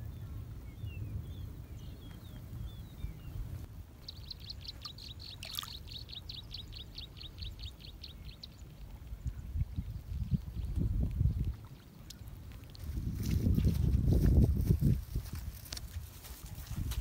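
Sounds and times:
steady low rumble: 0.0s - 4.7s
bird chirping: 0.0s - 8.8s.

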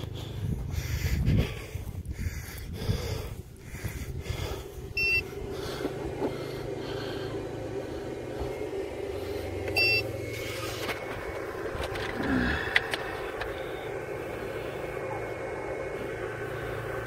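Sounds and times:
steady low hum: 0.0s - 17.0s
short electronic beeps: 5.0s - 5.3s, 9.8s - 10.1s.

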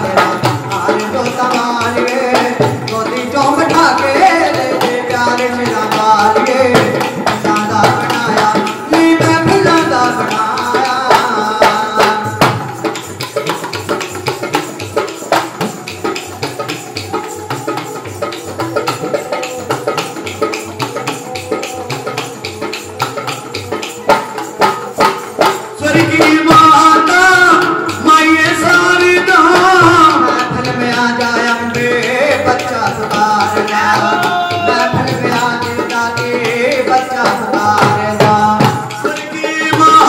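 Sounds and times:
hand drums beating: 0.0s - 40.0s
man singing: 0.0s - 40.0s.

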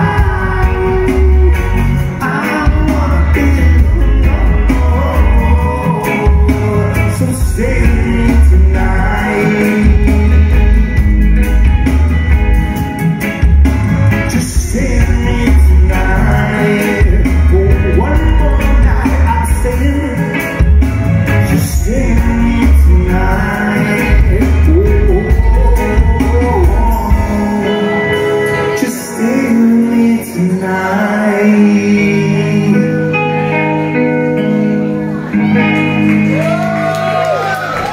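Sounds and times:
singer singing: 0.0s - 12.2s, 14.1s - 37.9s
drum kit: 0.0s - 29.5s
bass guitar: 0.0s - 37.9s
electric guitars: 0.0s - 37.9s.

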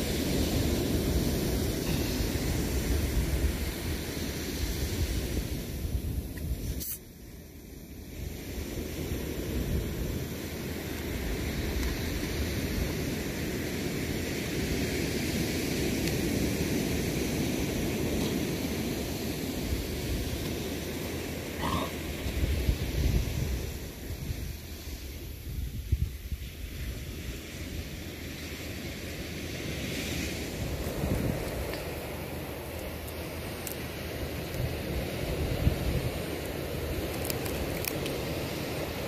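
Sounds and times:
wind on microphone: 0.0s - 7.1s, 21.6s - 28.1s, 29.6s - 32.7s, 34.4s - 39.0s
sea surf: 0.0s - 39.0s.

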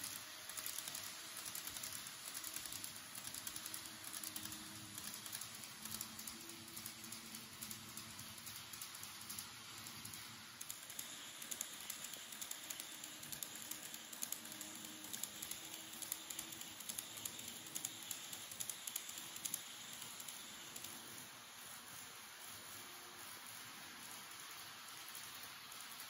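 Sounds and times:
faint motor hum: 0.0s - 26.0s
model train rolling hiss: 0.0s - 26.0s.

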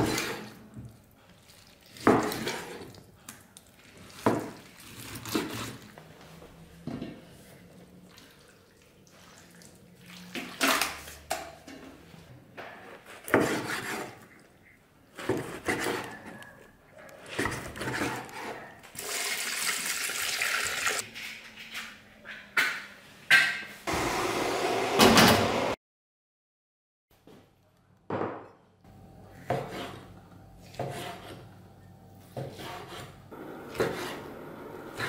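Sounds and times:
water running into pot: 19.0s - 21.0s.

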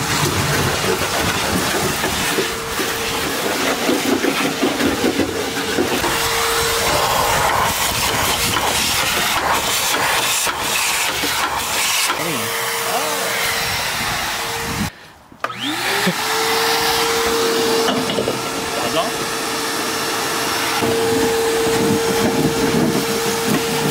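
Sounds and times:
shop vacuum whining: 0.0s - 23.9s.

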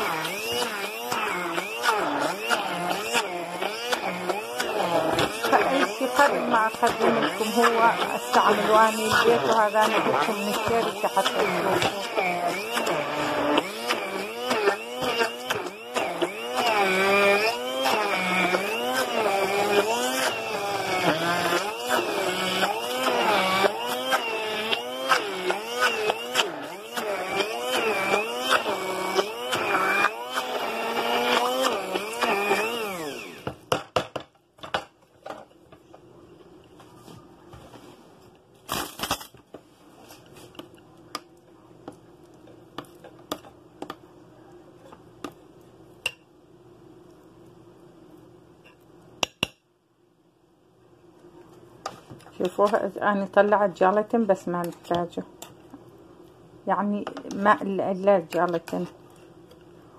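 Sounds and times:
food processor motor running: 0.0s - 33.7s.

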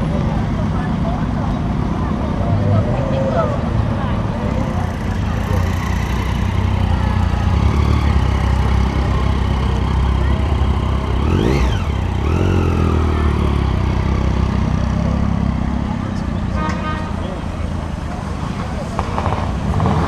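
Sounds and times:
motorcycle engine revving: 4.4s - 17.1s, 18.4s - 20.0s.

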